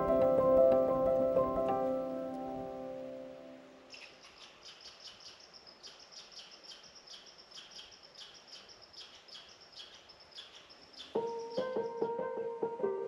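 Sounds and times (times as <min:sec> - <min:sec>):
outdoor ambience hiss: 0:00.0 - 0:13.0
high-pitched chirping: 0:09.3 - 0:12.2.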